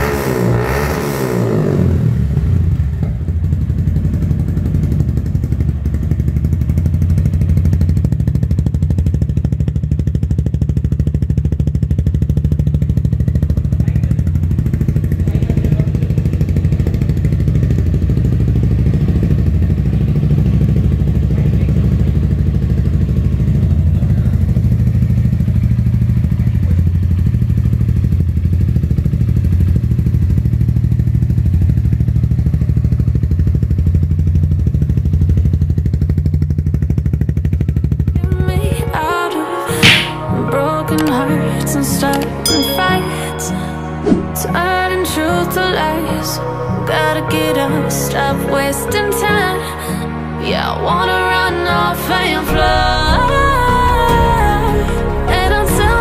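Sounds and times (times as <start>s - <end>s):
motorcycle engine idling: 1.7s - 39.0s.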